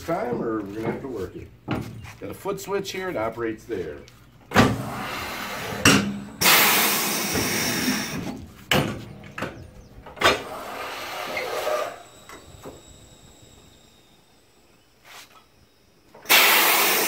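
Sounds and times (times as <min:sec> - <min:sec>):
compressed air rush: 0:04.5 - 0:09.2, 0:10.2 - 0:17.0.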